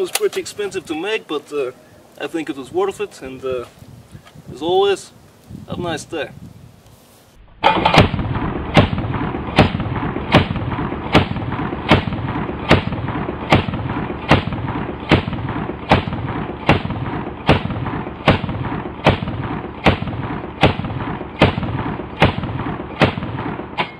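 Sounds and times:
shotgun firing: 7.6 - 23.9.

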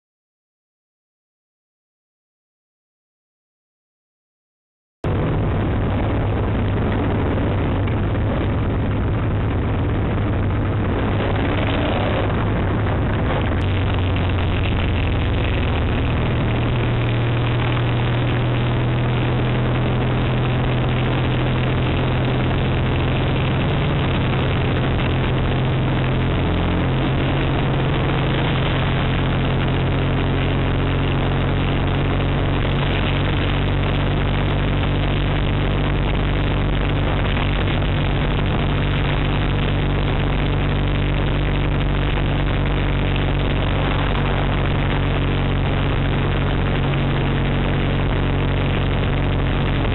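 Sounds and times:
motorcycle engine running: 5.0 - 49.9
wind and road noise: 5.0 - 49.9.

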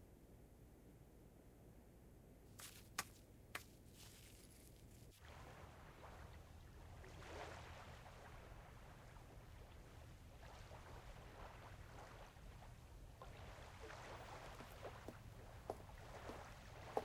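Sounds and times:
low steady hum: 0.0 - 17.0
water lapping: 5.1 - 17.0.

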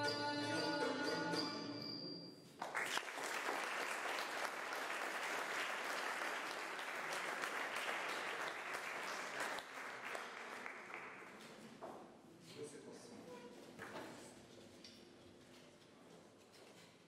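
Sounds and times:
audience applause: 2.6 - 11.4.

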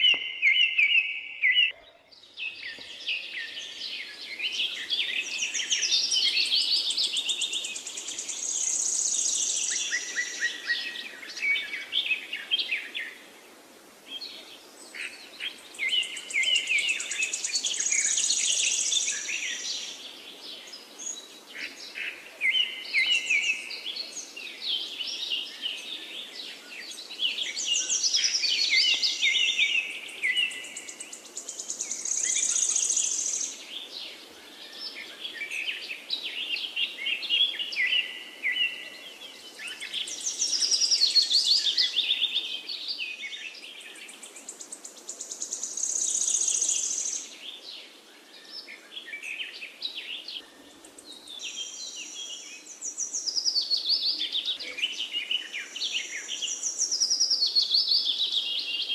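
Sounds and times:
birds chirping and trilling: 0.0 - 58.9.

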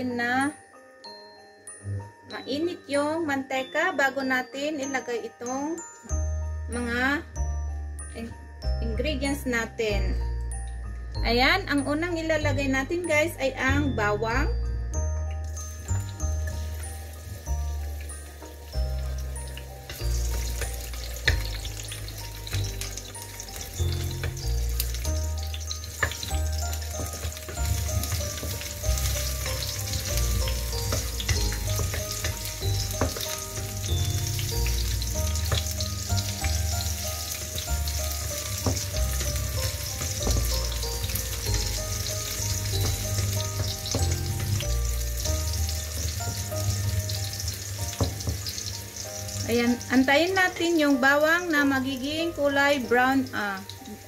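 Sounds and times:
background music: 0.0 - 54.0
garlic sizzling in hot oil: 15.4 - 54.0.

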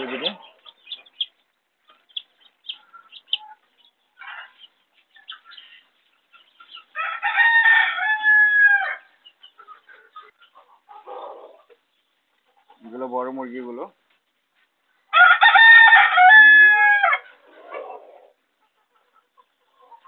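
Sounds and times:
chicks peeping and hens clucking: 0.0 - 15.1, 16.4 - 20.0
rooster crowing: 7.0 - 9.1, 15.1 - 17.3.

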